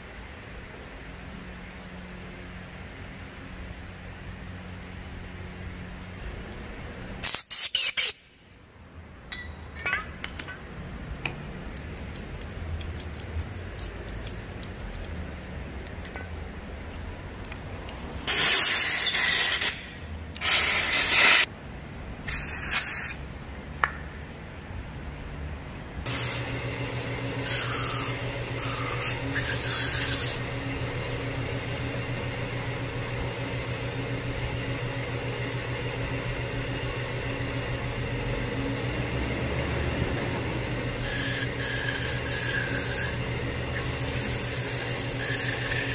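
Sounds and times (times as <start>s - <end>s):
hissing air sprays: 7.2s - 8.4s, 19.6s - 21.5s
electric motor hum: 26.0s - 45.9s.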